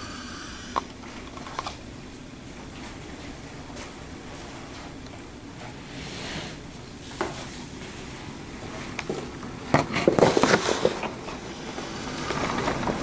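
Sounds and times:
wind and rain outside: 0:00.8 - 0:13.0
window blinds clattering: 0:10.0 - 0:13.0.

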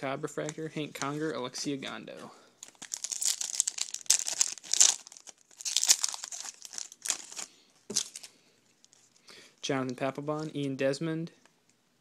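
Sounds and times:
foil wrappers crinkling and tearing: 0:02.6 - 0:08.3.

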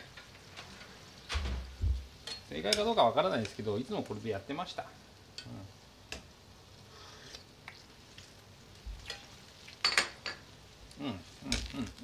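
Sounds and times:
sauce simmering with faint sizzle: 0:00.0 - 0:12.0
ladle and dishes clinking: 0:09.0 - 0:10.4.

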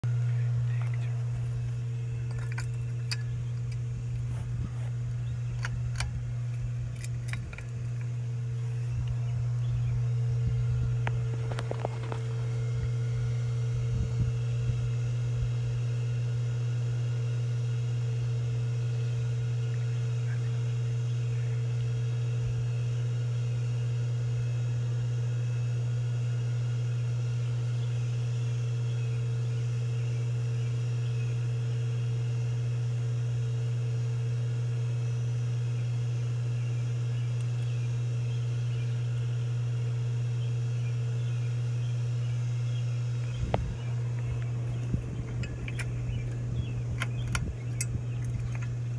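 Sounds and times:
ceiling fan motor humming: 0:00.0 - 0:48.9
fan pull-chain clicks: 0:02.2 - 0:04.6, 0:05.3 - 0:08.2, 0:43.2 - 0:48.9.

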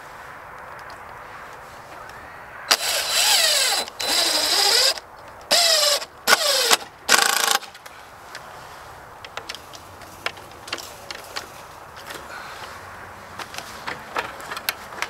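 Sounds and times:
power drill driving screws: 0:02.7 - 0:07.7.

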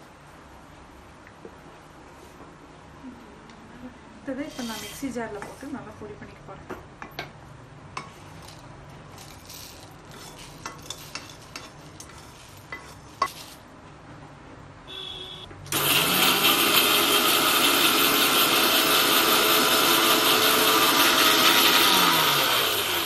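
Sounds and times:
electric mixer grinder running: 0:15.7 - 0:23.0.

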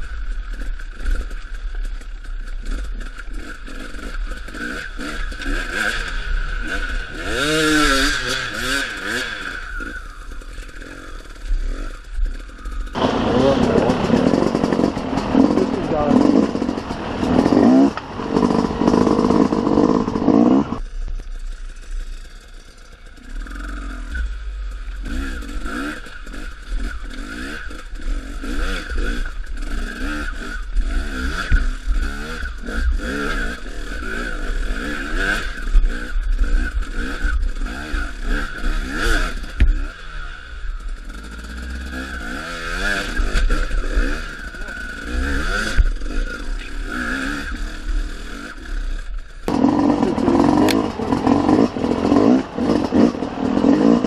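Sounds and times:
dirt bike engine revving: 0:00.0 - 0:54.0
low rumble: 0:11.2 - 0:23.2.

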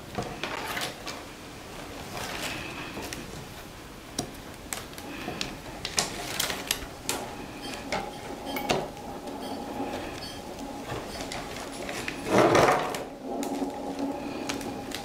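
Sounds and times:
willow rods clicking and creaking: 0:04.2 - 0:15.0.

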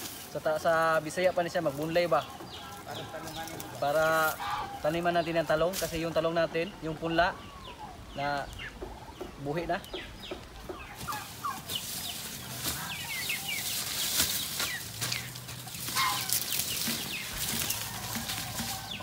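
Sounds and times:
hand tools digging in soil: 0:00.0 - 0:00.4, 0:11.0 - 0:19.0
chickens chirping: 0:00.0 - 0:19.0.

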